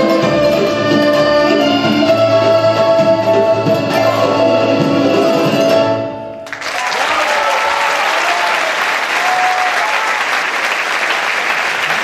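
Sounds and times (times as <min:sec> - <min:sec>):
audience applause: 0:06.4 - 0:12.0.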